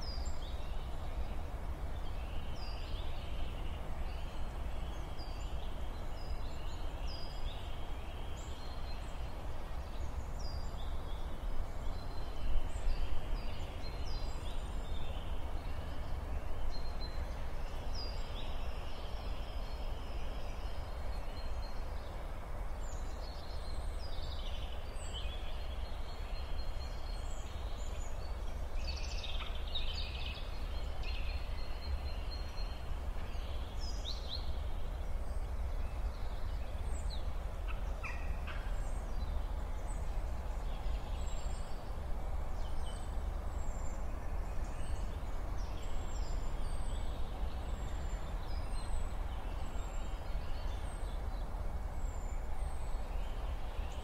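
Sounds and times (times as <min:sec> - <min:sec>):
small birds chirping: 0:00.0 - 0:01.4.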